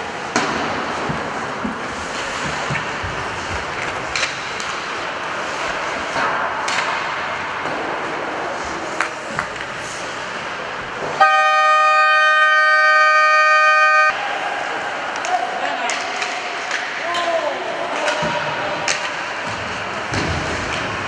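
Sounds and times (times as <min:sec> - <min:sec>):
hockey sticks and puck clicking: 0:00.0 - 0:11.2, 0:14.6 - 0:21.0
arena horn blast: 0:11.2 - 0:14.2.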